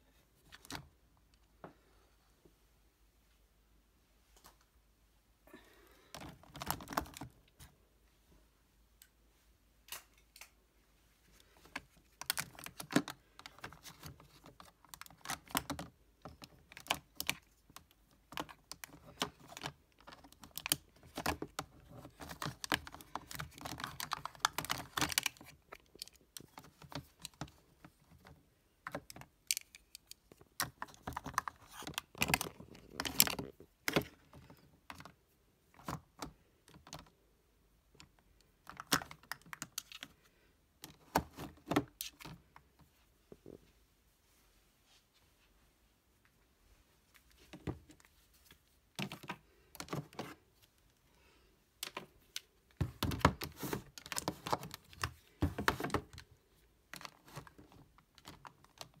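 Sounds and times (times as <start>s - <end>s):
plastic compacts clicking and clattering: 6.1s - 7.6s, 11.6s - 37.2s, 37.9s - 42.6s, 48.9s - 50.7s, 51.8s - 59.0s.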